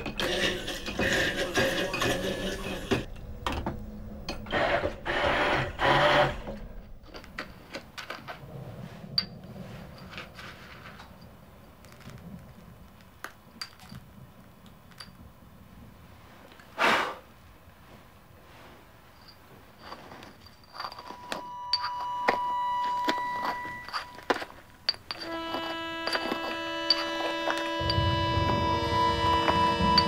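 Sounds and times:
bell-like ringing tones: 0:20.7 - 0:24.4, 0:25.1 - 0:30.0.

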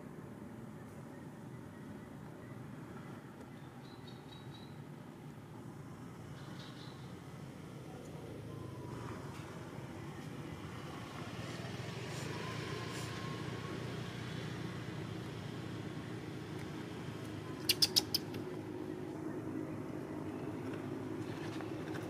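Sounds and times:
low outdoor background rumble: 0:00.0 - 0:22.0
sharp clicks: 0:17.6 - 0:18.6.

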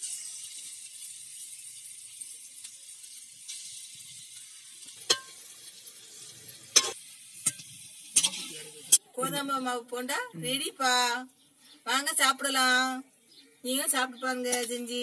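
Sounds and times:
hot oil sizzling: 0:00.0 - 0:11.0
ladle clinking against pan: 0:05.1 - 0:05.4.

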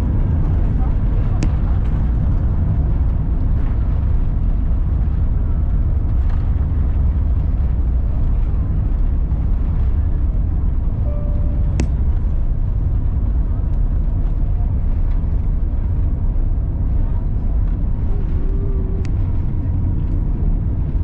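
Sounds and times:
aircraft cabin low rumble: 0:00.0 - 0:21.0
brief steady tone: 0:11.0 - 0:12.2, 0:18.1 - 0:19.1.

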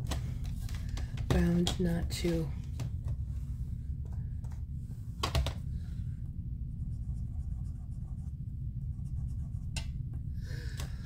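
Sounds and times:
low hum: 0:00.0 - 0:11.0
chalk scratching on paper: 0:06.8 - 0:09.8.

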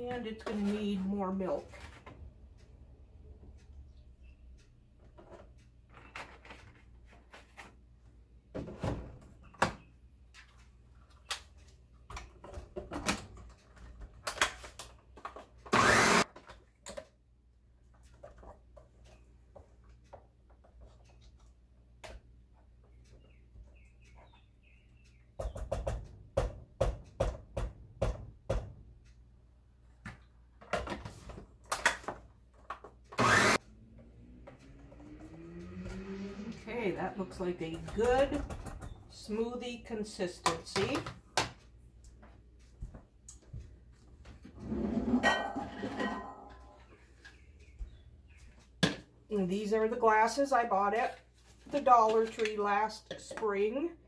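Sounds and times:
blender running in bursts: 0:15.7 - 0:16.2, 0:33.2 - 0:33.6.

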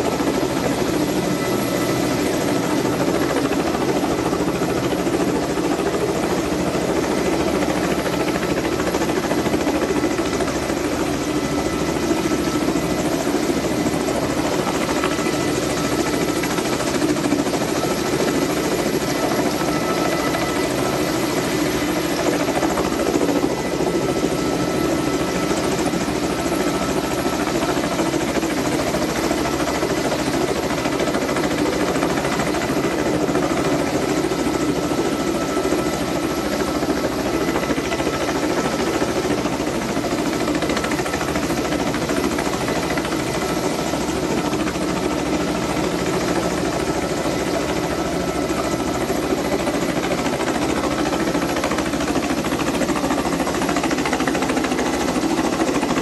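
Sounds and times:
helicopter hovering: 0:00.0 - 0:56.0.

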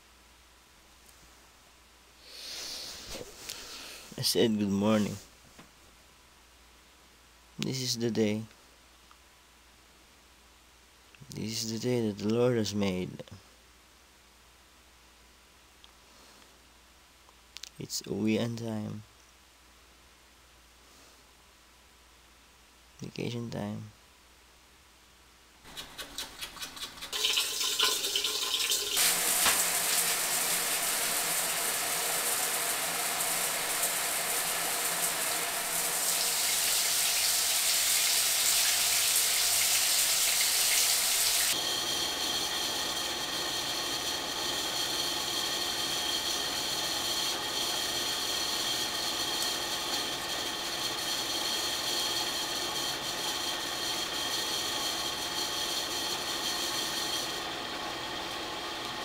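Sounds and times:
toothbrush scrubbing: 0:25.7 - 0:29.6
water running from tap: 0:27.1 - 0:41.6.

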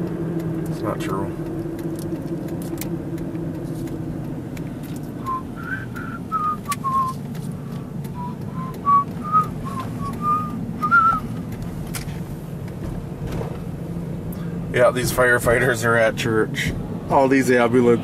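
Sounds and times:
car driving hum: 0:00.0 - 0:18.0
person whistling a tune: 0:05.2 - 0:07.2, 0:08.2 - 0:11.3.

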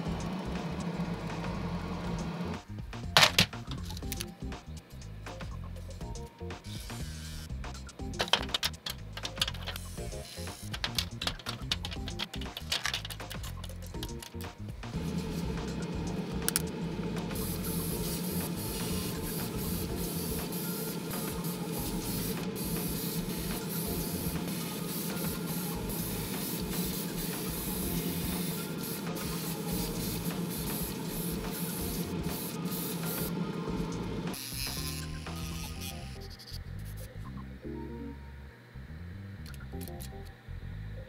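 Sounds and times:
low mechanical hum: 0:00.0 - 0:41.0
paint spraying hiss: 0:06.6 - 0:07.6, 0:08.2 - 0:12.6, 0:14.9 - 0:37.1.

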